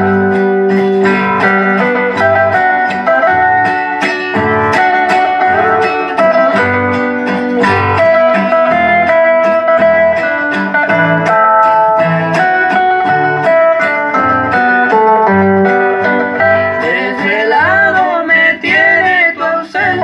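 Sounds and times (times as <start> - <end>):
acoustic guitars playing: 0.0 - 20.0.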